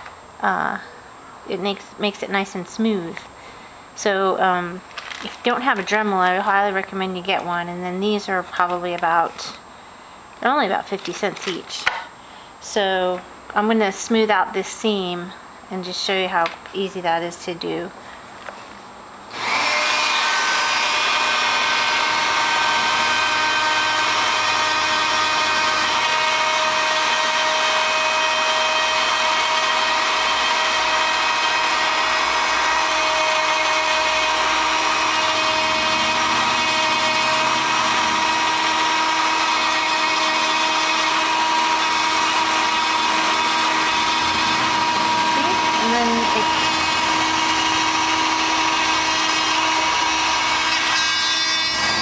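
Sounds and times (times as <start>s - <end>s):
rotary tool motor whine: 19.3s - 52.0s
abrasive wheel sanding metal: 19.4s - 52.0s.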